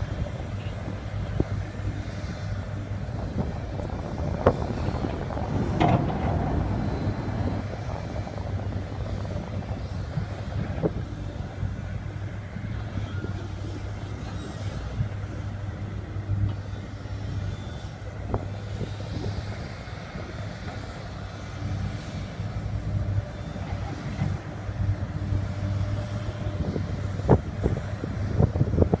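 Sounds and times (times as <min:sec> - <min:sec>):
heavy diesel machinery droning: 0:00.0 - 0:29.0.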